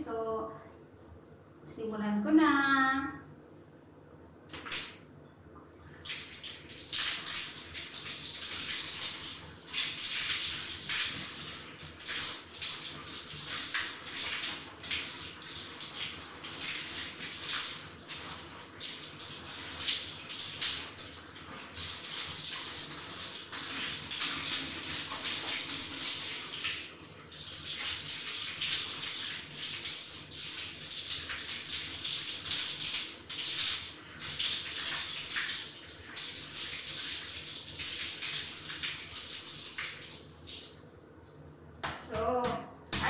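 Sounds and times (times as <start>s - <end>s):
tap water running and splashing: 5.8s - 42.3s.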